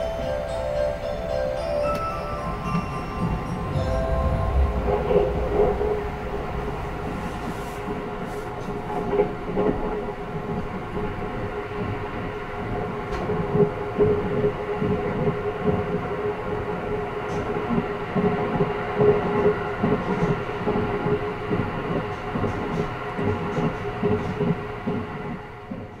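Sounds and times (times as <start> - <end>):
electric train rumbling: 0.0 - 26.0
low thuds: 3.2 - 8.8.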